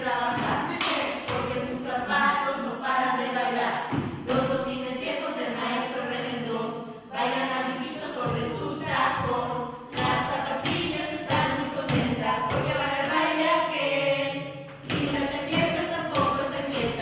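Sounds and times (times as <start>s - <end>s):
choir singing: 5.2s - 17.0s.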